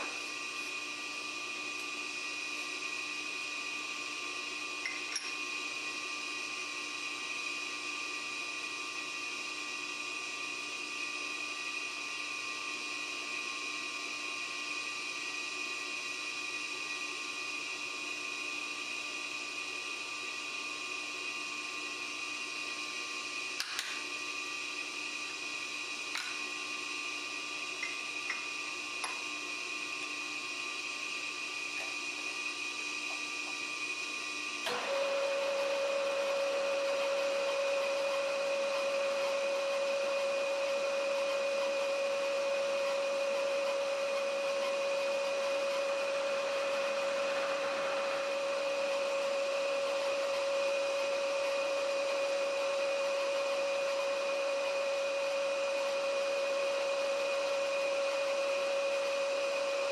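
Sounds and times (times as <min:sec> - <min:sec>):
milling machine whining: 0:00.0 - 0:59.9.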